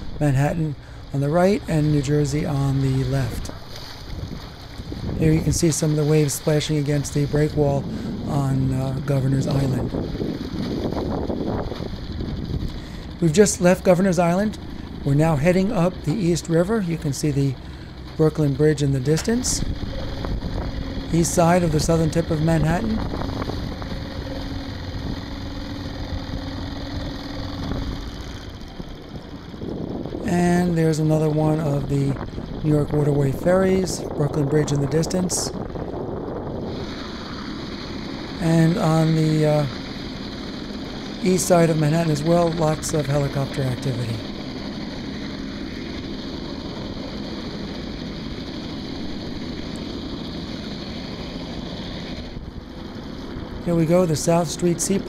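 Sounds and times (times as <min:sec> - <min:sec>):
boat motor humming: 0:00.0 - 0:55.0
water rushing: 0:00.0 - 0:55.0
wind: 0:00.0 - 0:55.0.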